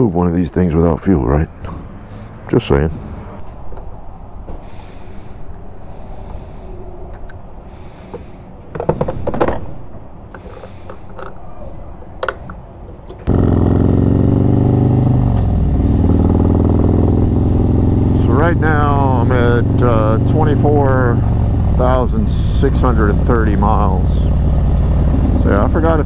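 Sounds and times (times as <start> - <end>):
metal clanks and knocks: 8.1 - 11.4, 25.0 - 25.8
motorcycle engine running loud: 13.3 - 26.0
noisy background: 18.2 - 26.0.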